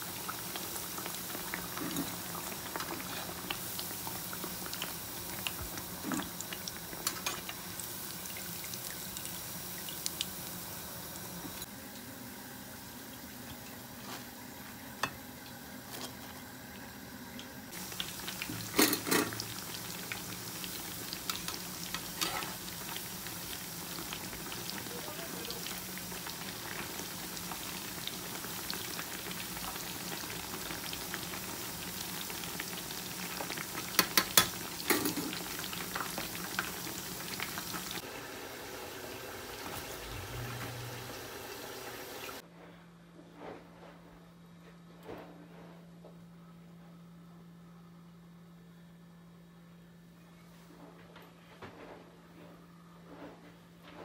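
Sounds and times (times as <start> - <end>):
meat sizzling in oil: 0.0 - 11.7, 17.7 - 42.4.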